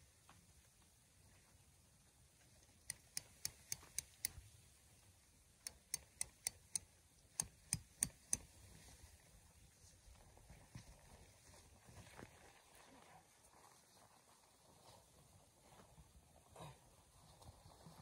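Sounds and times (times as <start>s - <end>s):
tent stake being tapped in: 2.9s - 4.4s, 5.6s - 8.5s.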